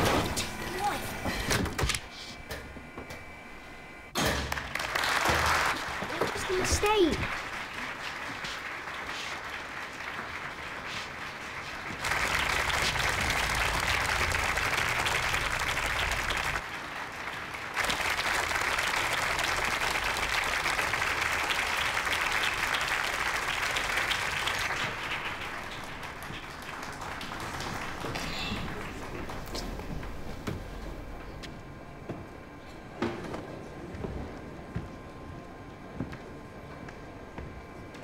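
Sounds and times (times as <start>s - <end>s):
audience applauding: 4.5s - 30.4s.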